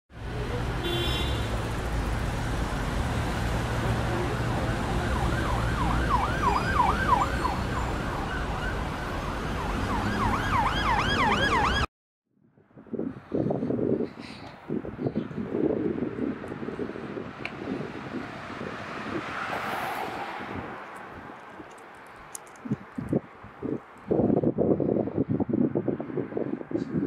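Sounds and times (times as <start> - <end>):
street traffic rumble: 0.1 - 11.9, 12.5 - 27.0
emergency siren yelping: 4.3 - 11.9.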